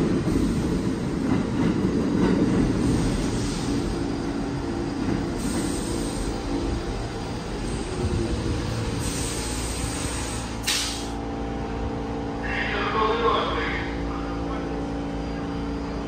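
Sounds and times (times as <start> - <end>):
subway train rumbling: 0.0 - 16.0
air brakes hissing: 5.3 - 6.4, 8.9 - 11.2.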